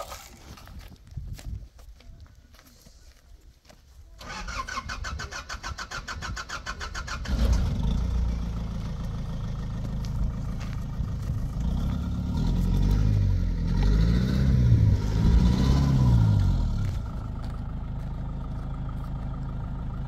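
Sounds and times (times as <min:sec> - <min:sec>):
engine idling: 0:04.2 - 0:13.7, 0:16.2 - 0:20.0.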